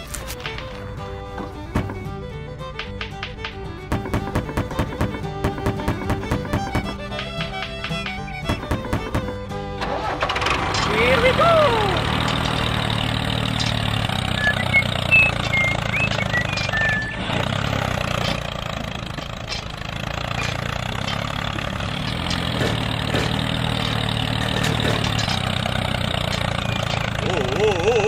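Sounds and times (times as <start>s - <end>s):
tractor engine humming: 0.0s - 28.0s
short high chirps: 14.4s - 17.2s.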